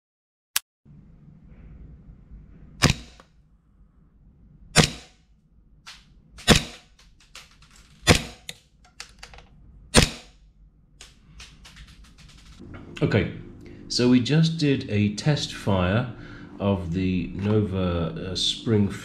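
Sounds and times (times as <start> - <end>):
gas pistol shots: 6.4 - 6.9, 8.0 - 8.5, 9.9 - 10.4.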